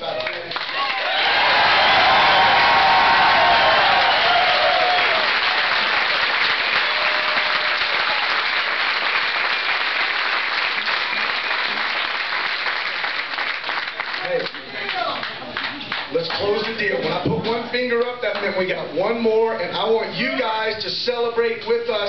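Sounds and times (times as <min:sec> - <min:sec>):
crowd applauding and cheering: 0:00.0 - 0:16.8
people shouting: 0:00.8 - 0:05.4.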